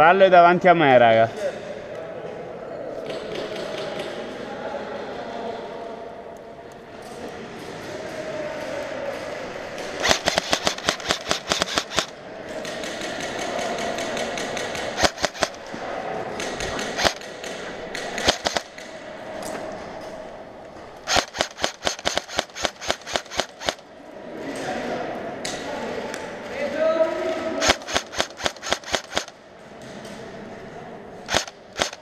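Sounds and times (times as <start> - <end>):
airsoft rifles firing rapidly: 8.6 - 19.0, 21.0 - 23.8, 27.1 - 29.4, 31.3 - 32.0.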